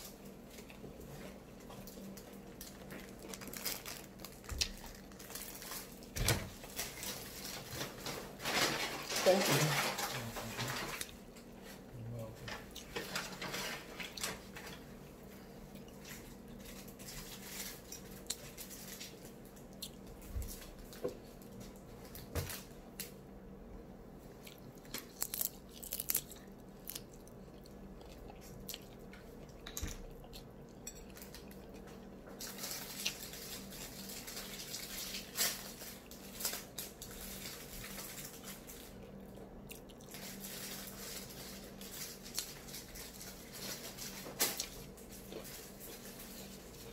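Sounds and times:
person chewing: 0:15.1 - 0:22.2, 0:24.3 - 0:35.3, 0:38.8 - 0:40.5.

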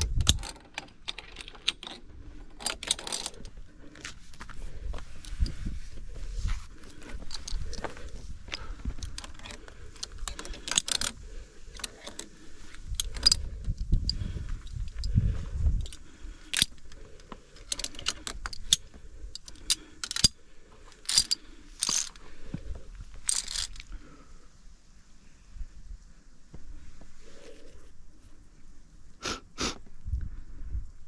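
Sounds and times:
carabiners clinking: 0:00.0 - 0:03.6, 0:06.8 - 0:22.3, 0:23.2 - 0:24.0.

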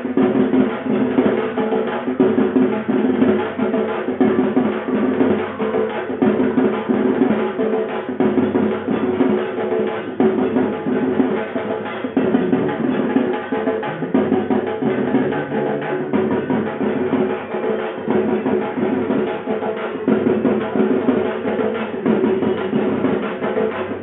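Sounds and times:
fast continuous drumming: 0:00.0 - 0:24.0
pitched instruments: 0:10.9 - 0:19.2.

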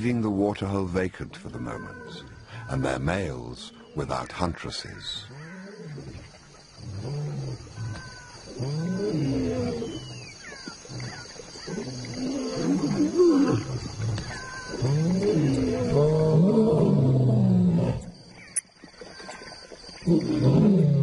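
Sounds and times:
lions growling: 0:05.3 - 0:18.2, 0:20.0 - 0:21.0.

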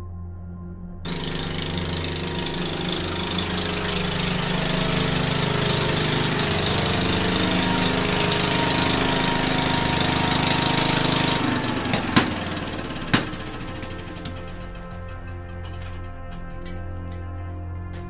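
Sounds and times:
garden tractor engine running: 0:01.1 - 0:18.0.

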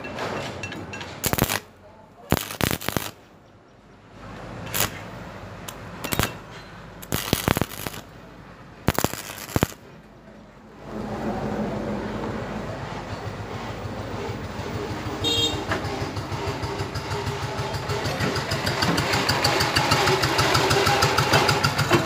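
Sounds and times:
welding arc crackling: 0:01.2 - 0:03.3, 0:04.7 - 0:06.4, 0:07.0 - 0:08.2, 0:08.8 - 0:09.9.

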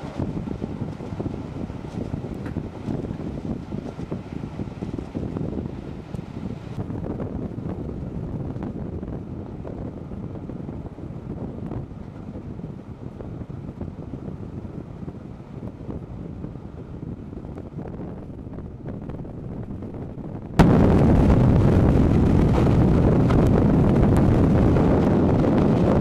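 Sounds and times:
train rumbling on track: 0:00.0 - 0:26.0.

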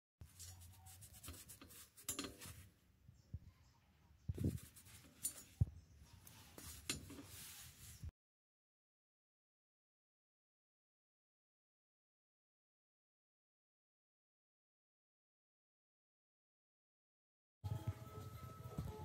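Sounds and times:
sponge scrubbing metal: 0:00.3 - 0:02.6.

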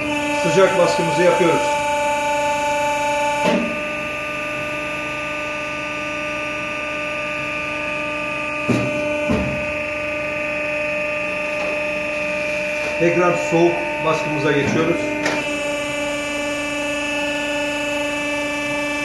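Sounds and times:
hot-press machine hum and whine: 0:00.0 - 0:19.0
sharp knocks: 0:08.6 - 0:09.7.

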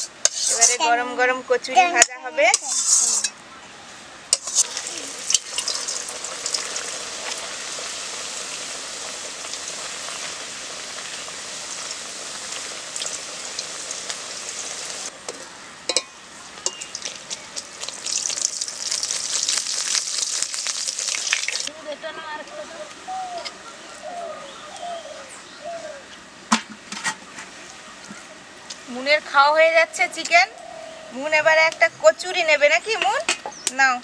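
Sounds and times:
food deep-frying in hot oil: 0:04.3 - 0:15.1, 0:16.6 - 0:21.7.

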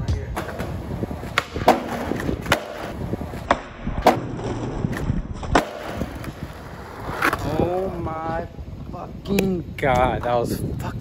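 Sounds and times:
skateboard wheels rolling on concrete: 0:00.0 - 0:11.0
skateboard clacks: 0:00.4 - 0:06.4
skateboard trucks grinding on wood: 0:00.4 - 0:08.0.

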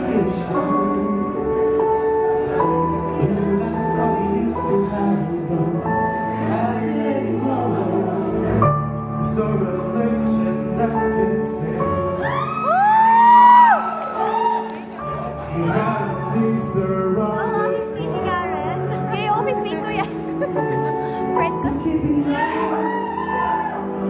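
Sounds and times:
male lead voice with vibrato: 0:15.5 - 0:22.9.

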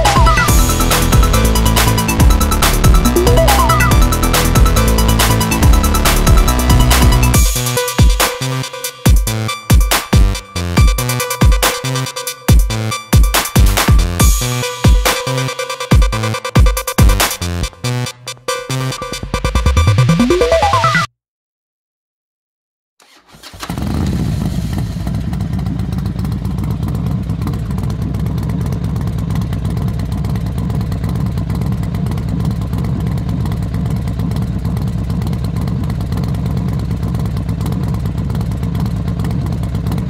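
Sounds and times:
motorcycle engine cruising: 0:00.0 - 0:07.8, 0:23.1 - 0:40.0.

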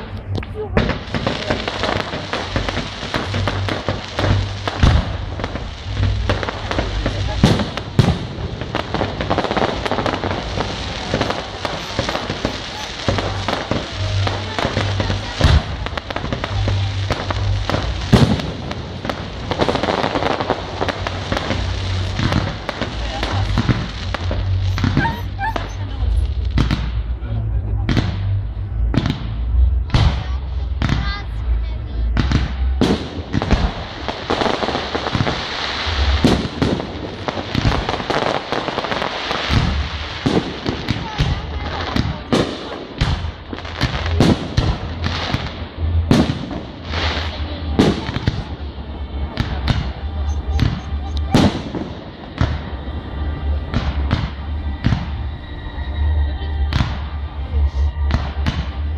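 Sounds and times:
deep fireworks thumps: 0:00.0 - 0:56.0, 0:56.6 - 0:58.9
fireworks sharp bangs: 0:00.0 - 0:56.0, 0:56.6 - 0:58.9
fireworks crackling: 0:00.0 - 0:58.9
firework shells banging: 0:00.2 - 0:27.0.

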